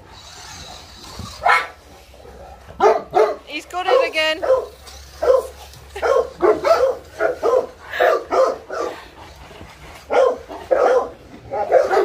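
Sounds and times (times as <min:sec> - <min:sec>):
dog barking: 0:01.4 - 0:01.8, 0:02.8 - 0:09.0, 0:10.1 - 0:12.0.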